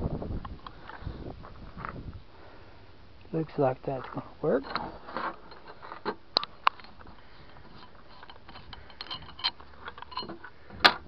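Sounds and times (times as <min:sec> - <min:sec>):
sharp clicks and light knocks: 0:04.0 - 0:11.0.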